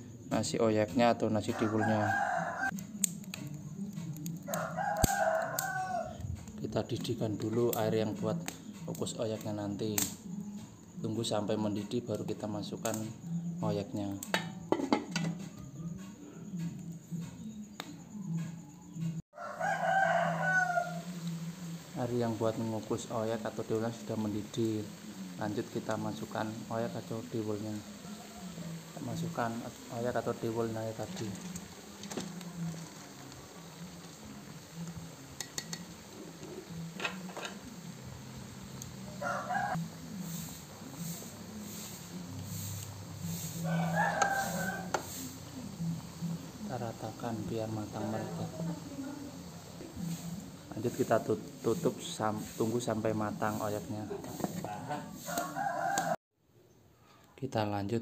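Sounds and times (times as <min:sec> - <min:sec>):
rooster crowing: 0:01.4 - 0:02.8, 0:04.4 - 0:06.2, 0:19.3 - 0:23.5, 0:25.1 - 0:41.2, 0:42.5 - 0:46.6, 0:54.0 - 0:56.2.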